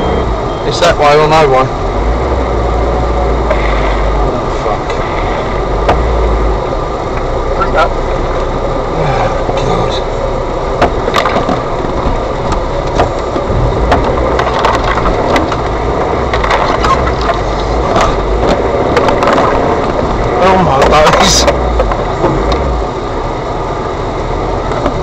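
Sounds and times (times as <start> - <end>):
engine rumbling: 0.0 - 25.0
vehicle body knocks and clicks: 5.8 - 6.2, 10.8 - 22.8, 24.7 - 25.0.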